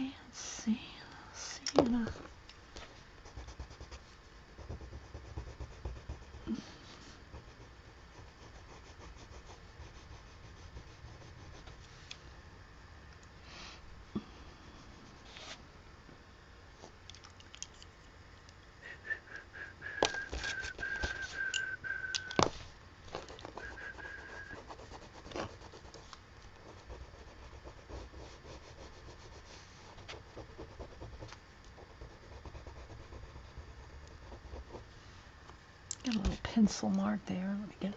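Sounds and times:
colored pencil scratching on paper: 3.2 - 11.9, 23.1 - 35.0
high whistle-like tone: 18.8 - 22.5, 23.6 - 24.6.

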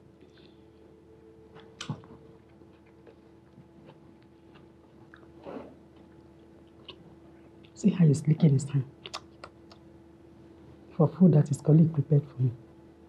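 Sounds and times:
steady low hum: 0.0 - 13.0
chewing noises: 1.6 - 7.8, 9.0 - 9.9.

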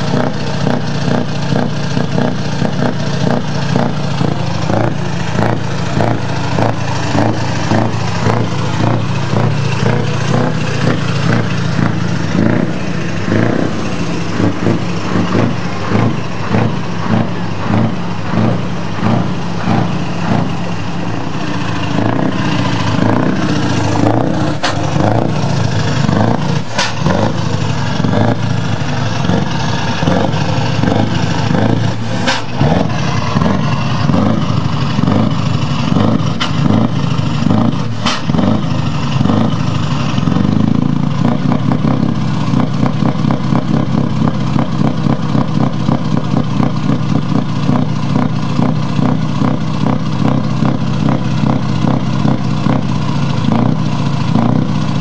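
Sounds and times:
diesel truck engine running: 0.0 - 55.0
knocks and clatter: 21.5 - 28.4.

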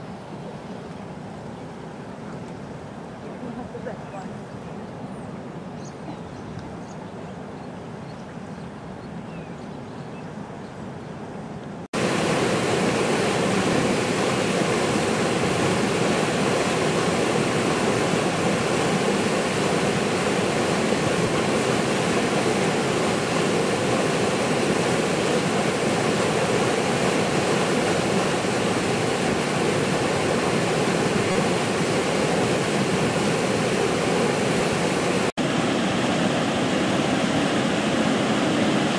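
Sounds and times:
floodwater roaring over weir: 0.0 - 4.5, 12.0 - 38.9
river rushing: 12.0 - 38.9.

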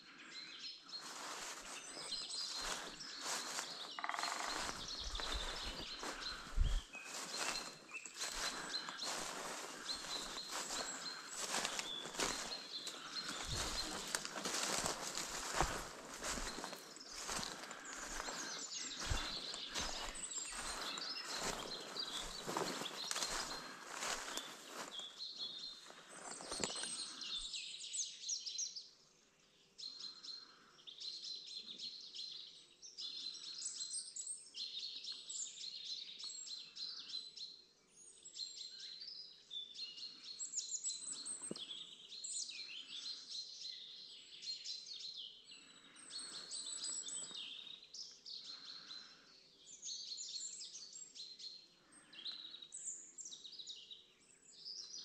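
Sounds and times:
songbirds singing: 0.0 - 55.0.

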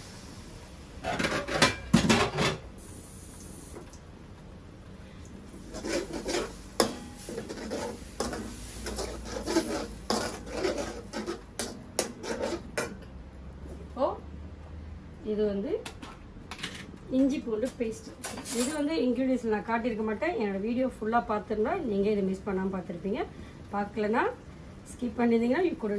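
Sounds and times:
metal spatula scraping a wok: 1.0 - 2.6, 5.6 - 13.1.

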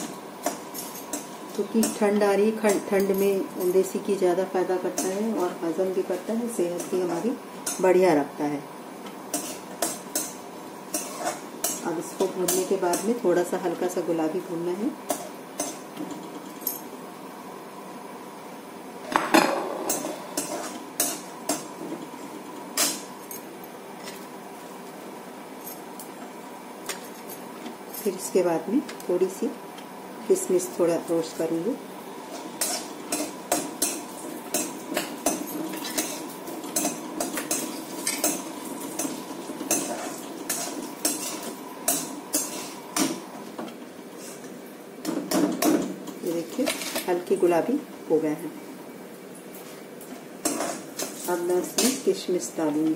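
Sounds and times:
nuts frying in ghee: 0.0 - 16.5, 27.7 - 49.0
metal spoon scraping a pan: 9.3 - 11.8, 19.9 - 21.7, 32.3 - 43.0, 50.4 - 51.2.

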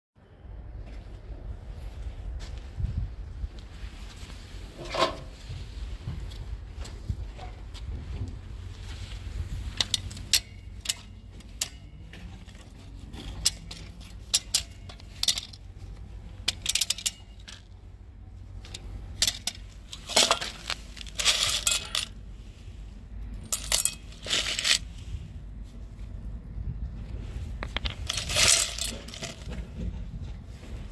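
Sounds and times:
screws clinking in steel bowl: 19.2 - 22.1, 28.1 - 29.4.

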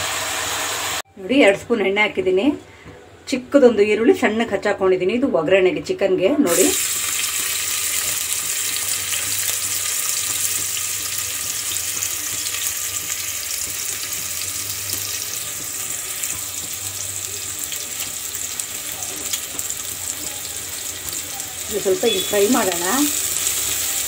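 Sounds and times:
onion sizzling in oil: 0.0 - 1.0, 6.5 - 24.0.

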